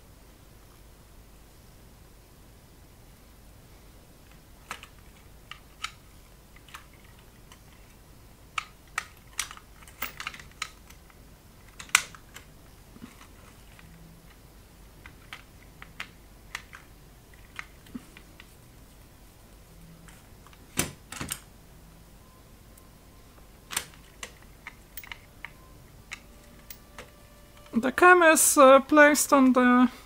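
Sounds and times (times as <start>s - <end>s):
screwdriver and metal parts clicking: 8.6s - 11.1s, 23.7s - 27.8s.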